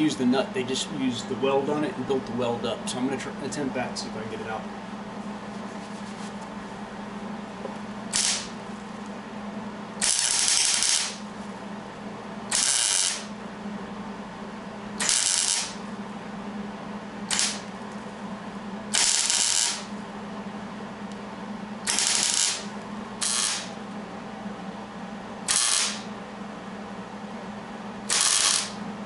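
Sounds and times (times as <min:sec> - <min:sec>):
arc welding crackling: 0:08.1 - 0:08.6, 0:10.0 - 0:11.3, 0:12.5 - 0:13.4, 0:15.0 - 0:15.8, 0:17.3 - 0:17.8, 0:18.9 - 0:20.0, 0:21.8 - 0:23.8, 0:25.5 - 0:26.1, 0:28.1 - 0:28.8.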